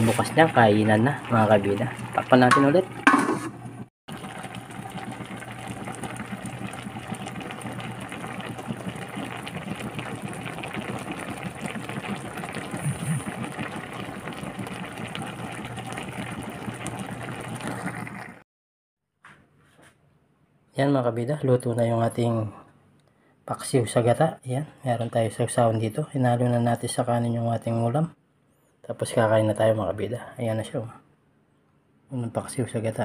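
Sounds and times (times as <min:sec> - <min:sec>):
broth bubbling in wok: 0:00.0 - 0:18.4.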